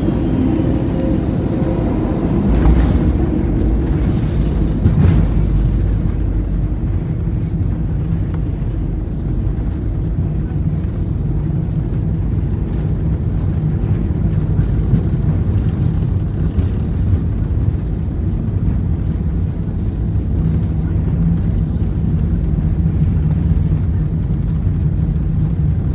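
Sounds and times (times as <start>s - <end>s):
jet engines: 0.0s - 25.9s
wheels rumbling on runway: 0.0s - 25.9s.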